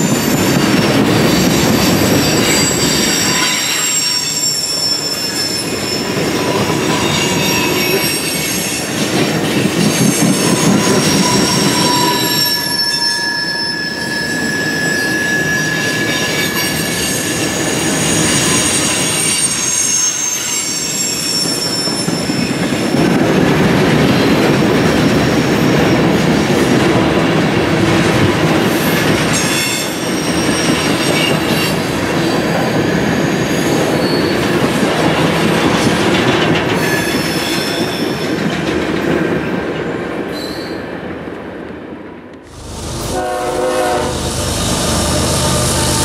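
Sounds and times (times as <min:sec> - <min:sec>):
high wheel squeal: 0:00.0 - 0:08.9, 0:09.8 - 0:22.6, 0:32.4 - 0:34.6, 0:42.5 - 0:46.0
steel wheels rumbling on rail: 0:00.0 - 0:46.0.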